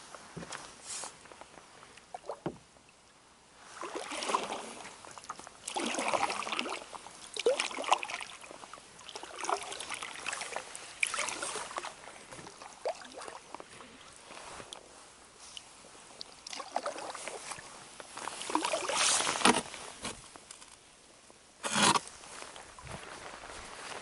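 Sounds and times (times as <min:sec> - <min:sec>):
paddle swishing water: 0:03.6 - 0:20.1.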